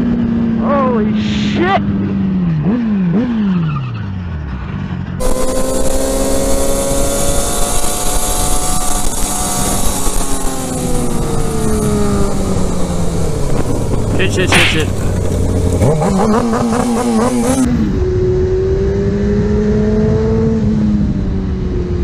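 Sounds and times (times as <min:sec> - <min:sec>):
motorcycle engine revving: 0:00.0 - 0:22.0
sportbike engine running: 0:05.2 - 0:17.7
wind rushing: 0:09.4 - 0:17.7.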